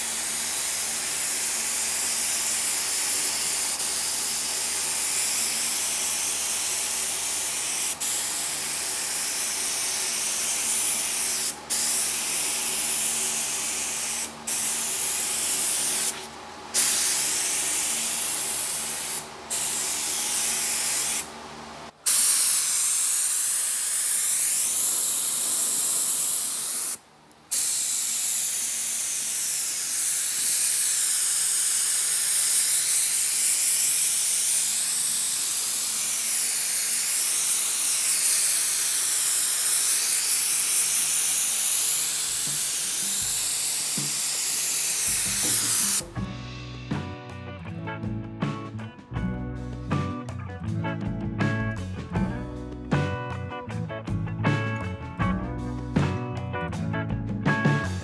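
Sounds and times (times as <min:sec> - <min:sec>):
paint spray gun hissing: 0:00.0 - 0:21.4, 0:22.0 - 0:46.2.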